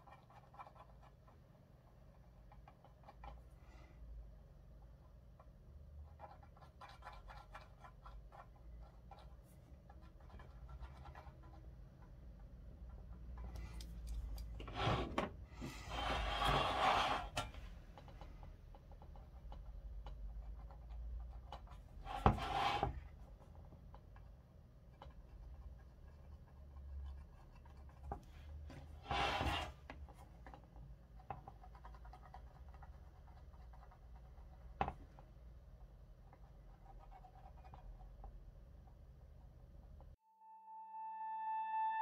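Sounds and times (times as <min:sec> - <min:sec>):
metal dial scraping on a mat: 0:14.5 - 0:18.4, 0:21.7 - 0:23.1, 0:28.2 - 0:30.0
pen scratching on metal: 0:15.6 - 0:17.6, 0:21.5 - 0:23.1, 0:28.9 - 0:29.8.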